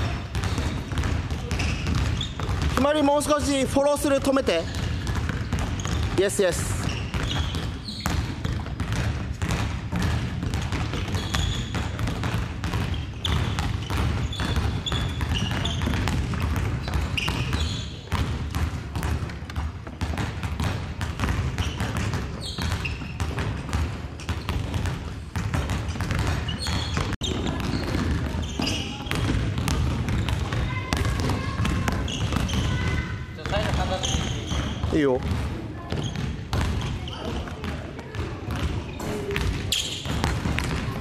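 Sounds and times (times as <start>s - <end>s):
shoe squeaks: 0.0s - 3.0s, 4.6s - 8.6s, 10.9s - 12.0s, 12.7s - 18.2s, 21.5s - 23.5s, 24.1s - 24.8s, 25.7s - 35.2s, 35.8s - 37.5s, 38.8s - 40.9s
basketballs bouncing on wooden floor: 0.0s - 41.0s.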